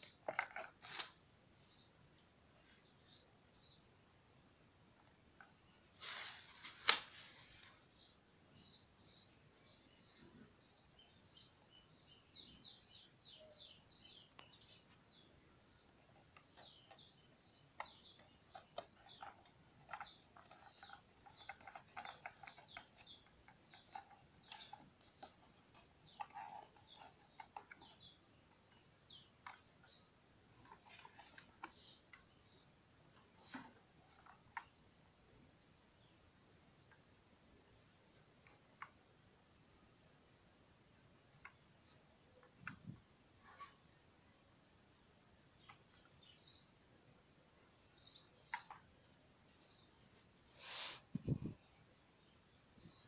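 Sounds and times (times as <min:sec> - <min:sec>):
bird chirping: 0:00.0 - 0:06.6, 0:07.3 - 0:53.0
plastic blister pack crackling: 0:00.3 - 0:01.2.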